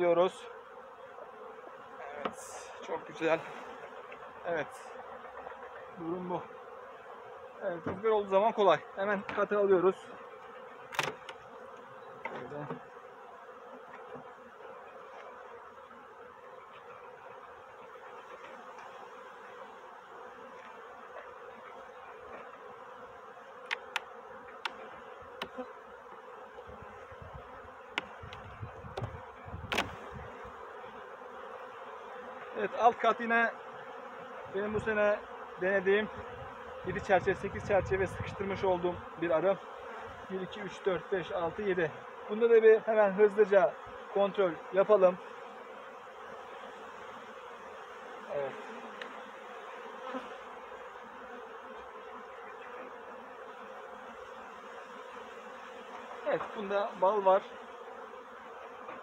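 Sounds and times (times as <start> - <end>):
honey bees buzzing: 0.0 - 59.0
metal hive tool clicking and knocking: 10.9 - 11.4, 23.6 - 24.8.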